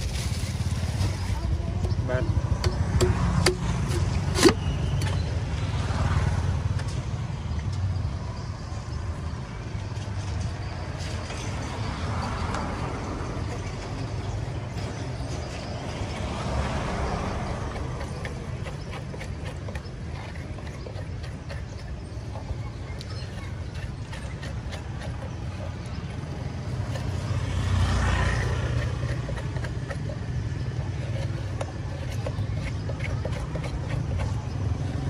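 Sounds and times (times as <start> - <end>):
rumble of street traffic: 0.0 - 35.0
cleaver chopping into coconut: 1.9 - 5.3, 16.3 - 35.0.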